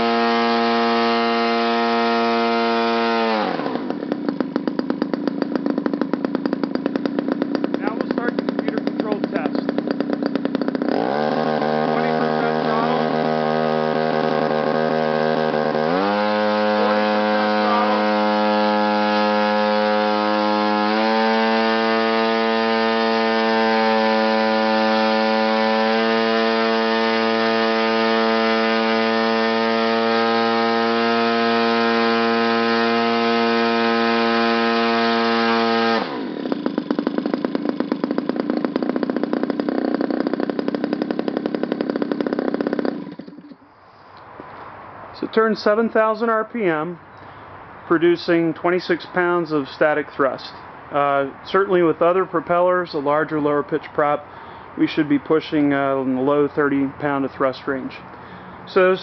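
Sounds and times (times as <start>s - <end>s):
two-stroke engine driving propeller: 0.0s - 43.7s.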